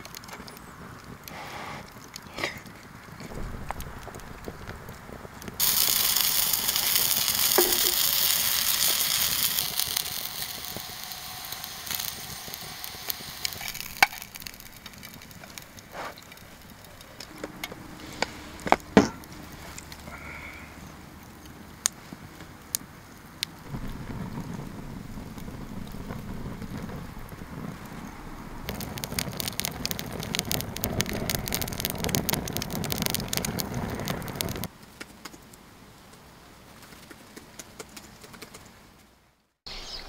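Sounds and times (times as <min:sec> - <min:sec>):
sausages sizzling in a frying pan: 0:05.6 - 0:21.0, 0:23.7 - 0:34.7.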